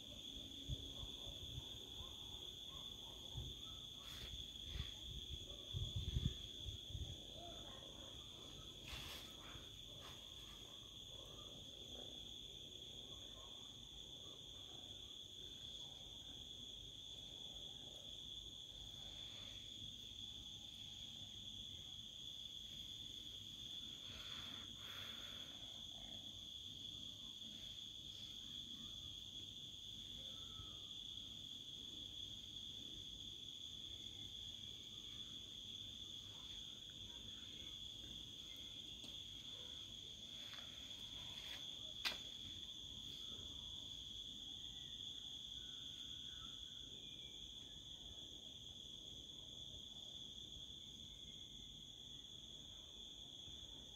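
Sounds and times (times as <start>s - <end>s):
insects trilling: 18.0s - 52.8s.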